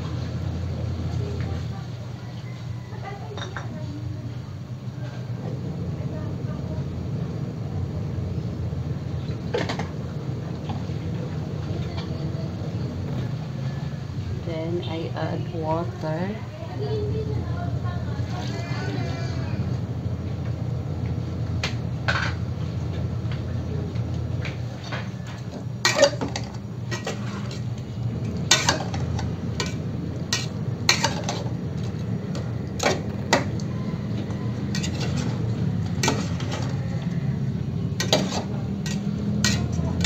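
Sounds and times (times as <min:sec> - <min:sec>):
steady low hum: 0:00.0 - 0:02.4, 0:03.6 - 0:40.0
metal spoon stirring in pot: 0:24.8 - 0:40.0.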